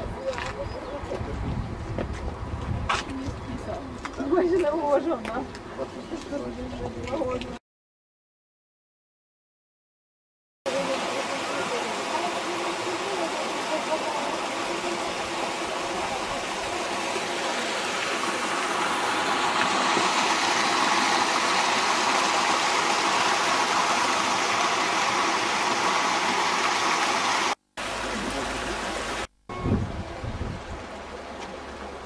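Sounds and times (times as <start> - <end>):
stream rushing over rocks: 10.7 - 29.3.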